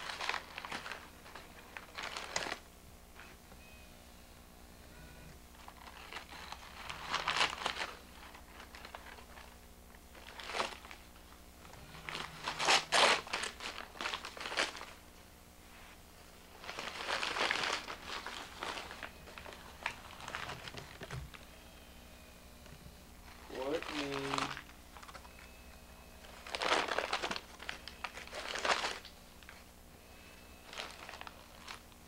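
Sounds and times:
newspaper crinkling and rustling: 0:00.0 - 0:02.7, 0:05.5 - 0:15.1, 0:15.7 - 0:21.5, 0:23.2 - 0:25.5, 0:26.1 - 0:29.7, 0:30.4 - 0:32.0.

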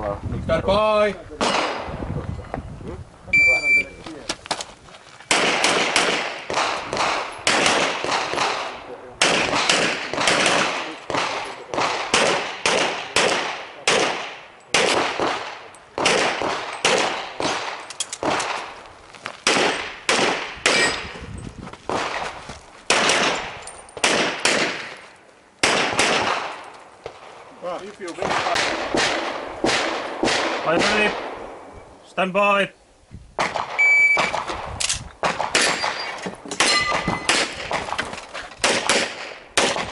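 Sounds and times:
pistol shots with echo: 0:01.4 - 0:01.9, 0:05.3 - 0:18.7, 0:19.4 - 0:21.1, 0:22.9 - 0:25.0, 0:25.6 - 0:27.2, 0:28.2 - 0:31.5, 0:35.2 - 0:37.8, 0:38.6 - 0:39.9.

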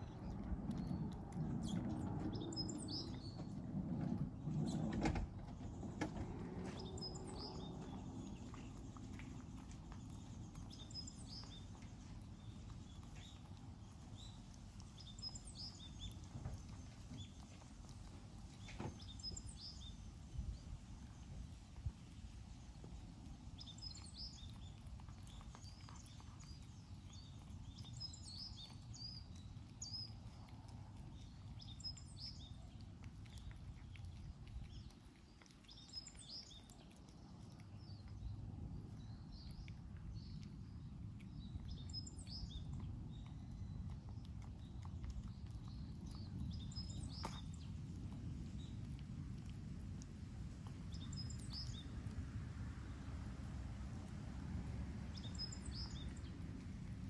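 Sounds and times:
cat chewing and crunching food: 0:00.0 - 0:57.0
low outdoor rumble: 0:00.0 - 0:57.0.

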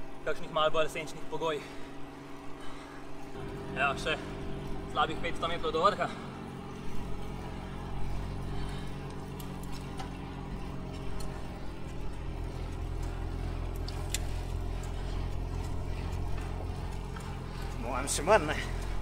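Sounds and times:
road and wind noise: 0:00.0 - 0:19.0
vehicle engine running: 0:00.0 - 0:19.0
faint light clicks: 0:13.0 - 0:15.1.

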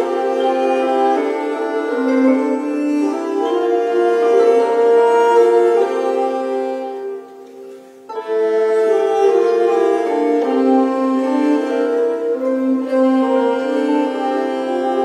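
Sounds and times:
bowed fiddles and harps: 0:00.0 - 0:15.0.

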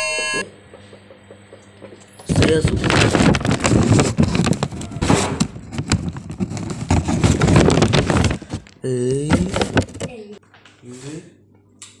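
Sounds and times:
paper bag rustling: 0:02.3 - 0:10.2.

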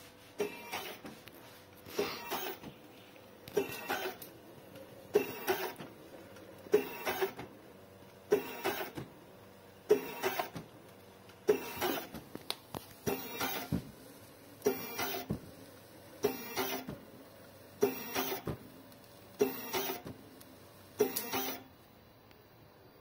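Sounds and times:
printer mechanical noise: 0:00.0 - 0:21.9.

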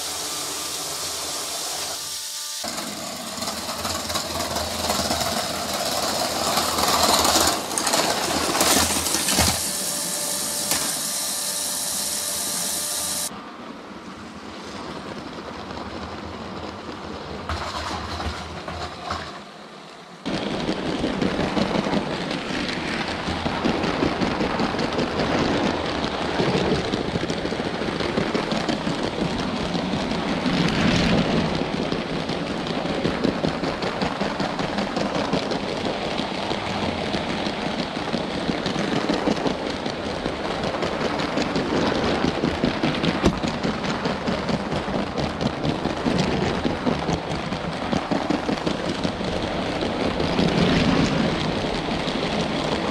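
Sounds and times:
toy train rattling on plastic track: 0:02.6 - 0:13.3.

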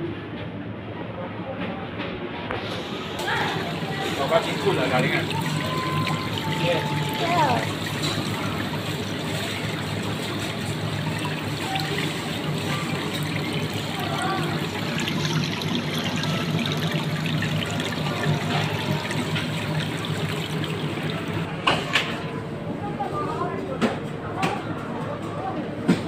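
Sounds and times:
water trickling and splashing: 0:03.1 - 0:22.2.

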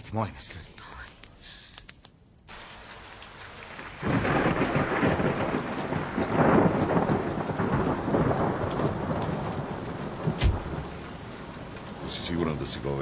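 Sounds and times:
steady rain: 0:00.1 - 0:13.0
thunder rumbling: 0:02.5 - 0:13.0
short low thump: 0:10.4 - 0:10.7.

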